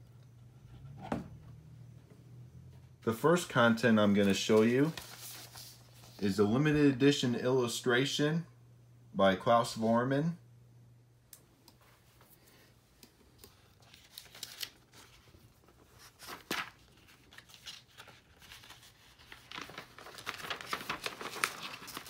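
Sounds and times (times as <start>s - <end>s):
thin paper sheet rustling: 4.1s - 6.3s, 13.4s - 22.0s.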